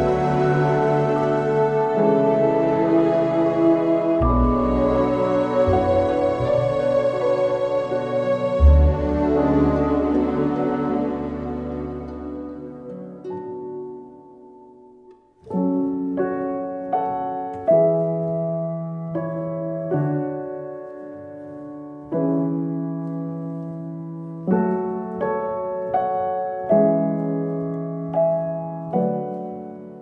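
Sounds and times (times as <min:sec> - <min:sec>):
slow piano piece: 0:00.0 - 0:30.0.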